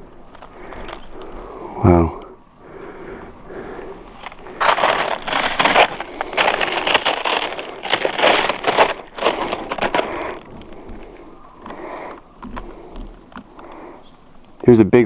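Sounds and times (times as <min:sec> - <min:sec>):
high insect trill: 0:00.0 - 0:15.0
footsteps crunching on rubble: 0:04.0 - 0:11.8.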